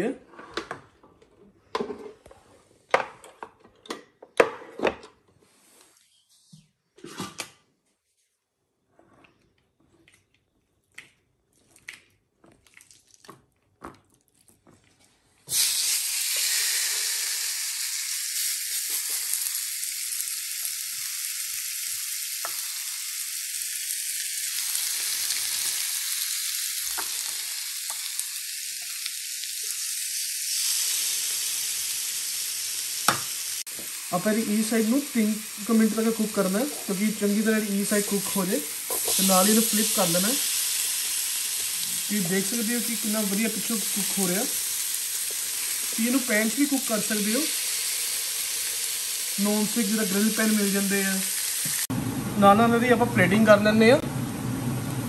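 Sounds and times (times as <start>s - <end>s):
chicken sizzling on a grill: 15.5s - 51.9s.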